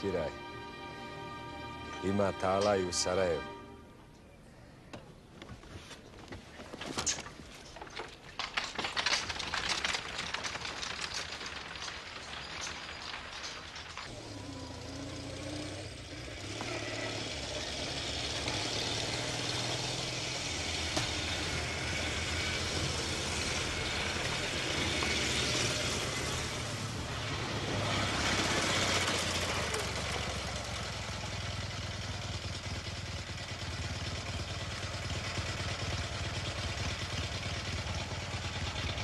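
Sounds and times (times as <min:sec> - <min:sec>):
clatter of clicks and knocks: 0:06.7 - 0:14.1
motorcycle engine running: 0:13.3 - 0:39.0.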